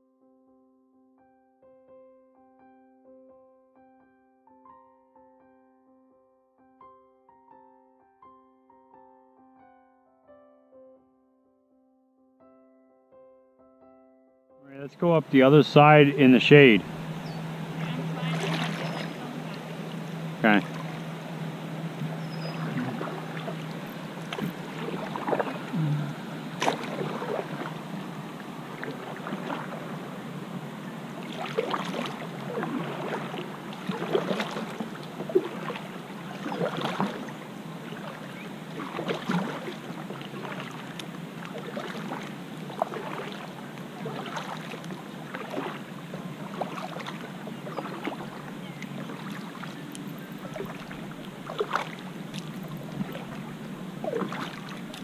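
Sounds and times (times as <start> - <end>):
kayak paddle splashing in water: 14.9 - 55.0
water dripping off paddle: 16.8 - 30.1, 31.1 - 55.0.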